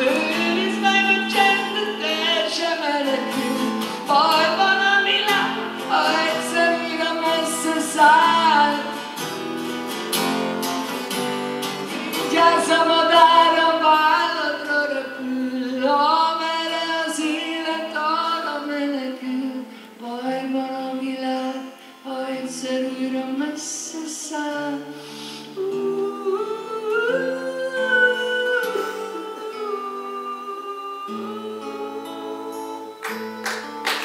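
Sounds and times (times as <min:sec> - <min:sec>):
man singing into a microphone: 0:25.7 - 0:33.4.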